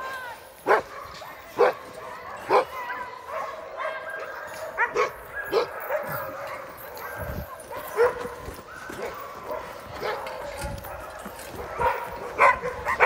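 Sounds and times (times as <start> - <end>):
dogs yipping and crying: 0.7 - 13.0
dog barking loudly: 3.3 - 8.4, 9.0 - 13.0.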